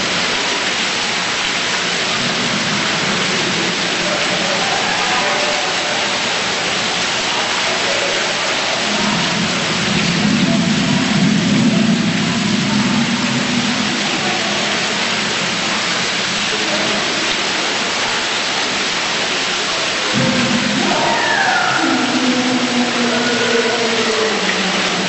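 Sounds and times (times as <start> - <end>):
water pouring down rock: 0.0 - 25.0
deeper rushing sound: 20.1 - 25.0.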